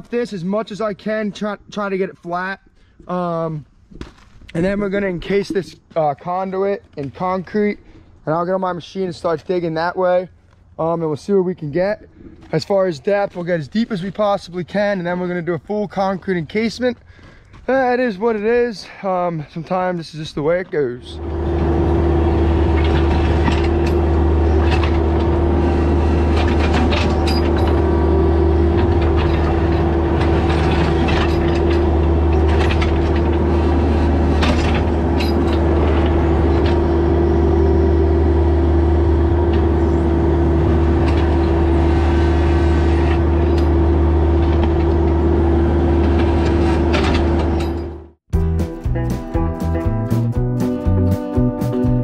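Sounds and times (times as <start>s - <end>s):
engine running steadily: 21.1s - 48.1s.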